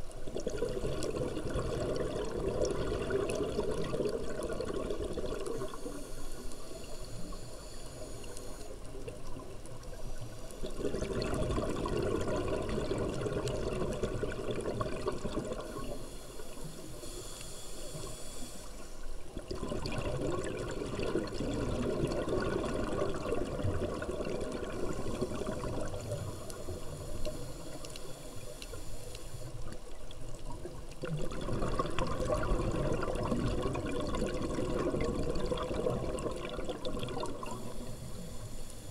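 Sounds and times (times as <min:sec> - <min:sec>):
bubbling exhaust: 0:00.4 - 0:05.7, 0:19.4 - 0:26.8, 0:31.0 - 0:38.3
hissing regulator inhale: 0:05.4 - 0:11.0, 0:15.5 - 0:19.3, 0:24.7 - 0:30.0, 0:37.4 - 0:38.9.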